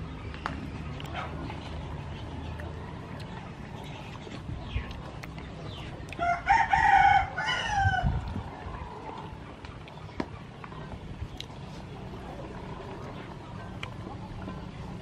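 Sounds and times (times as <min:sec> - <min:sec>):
rooster crowing: 0:06.2 - 0:08.2.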